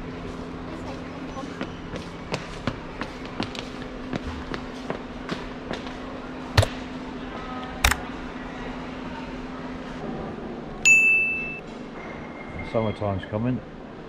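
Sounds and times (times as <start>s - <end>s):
short electronic beep: 10.9s - 11.6s.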